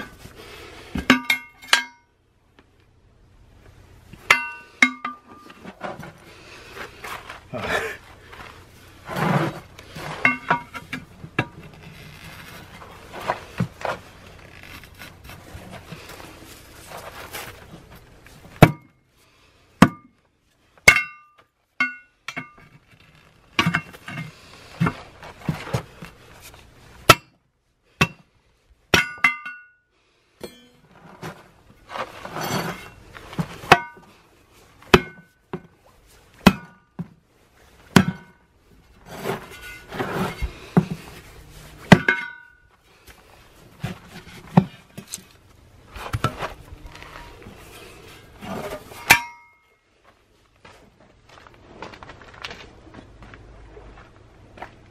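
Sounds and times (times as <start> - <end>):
sharp metallic clanks: 1.0 - 2.2, 4.2 - 5.5, 30.4 - 30.9, 41.9 - 42.7, 48.7 - 49.8
metal scraping on wheel rim: 8.3 - 16.2, 30.8 - 34.0, 39.0 - 42.5, 46.0 - 49.4.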